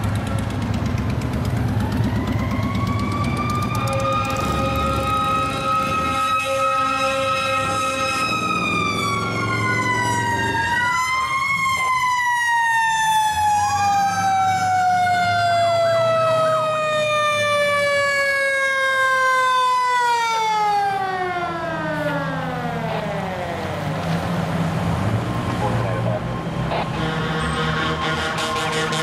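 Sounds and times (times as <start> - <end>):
fire engine siren: 0.0 - 29.0
truck engine rumbling: 0.0 - 29.0
second siren tone rising: 1.5 - 24.2.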